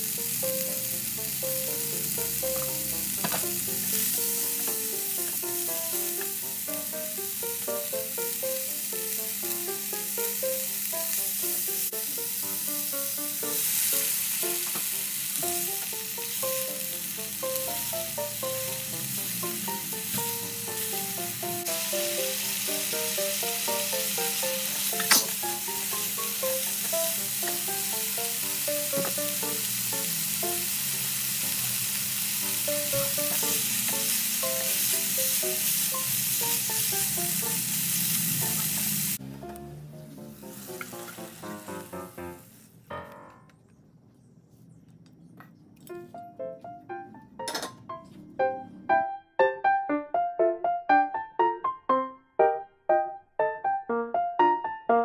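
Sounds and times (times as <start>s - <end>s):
vegetables sizzling in a pan: 0.0s - 42.8s
light melodic background tune: 0.1s - 30.8s, 38.4s - 43.5s, 45.8s - 55.0s
sharp clank: 25.0s - 25.4s.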